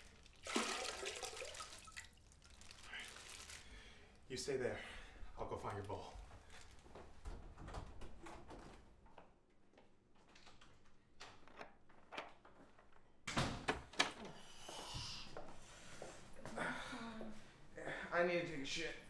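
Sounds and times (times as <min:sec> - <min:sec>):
light footsteps: 0:05.6 - 0:10.9, 0:14.6 - 0:16.6.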